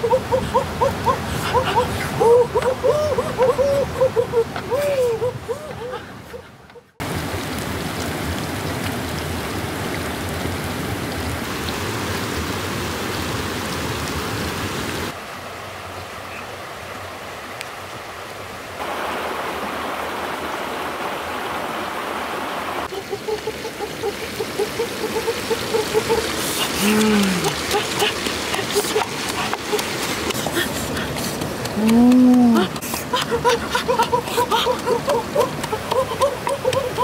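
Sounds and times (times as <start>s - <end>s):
uneven taps: 31.2s - 33.3s.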